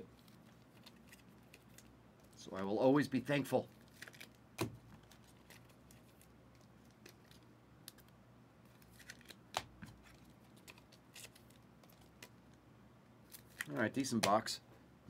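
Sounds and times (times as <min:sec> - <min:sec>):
trading cards clicking and rustling: 0:00.1 - 0:01.9, 0:03.8 - 0:12.6, 0:13.3 - 0:14.5.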